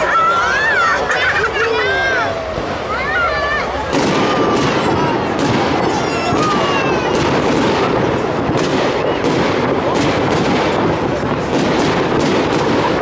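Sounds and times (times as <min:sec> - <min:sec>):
fireworks crackle: 0:00.0 - 0:13.0
fireworks whistling: 0:00.0 - 0:13.0
fireworks shells bursting: 0:03.8 - 0:13.0.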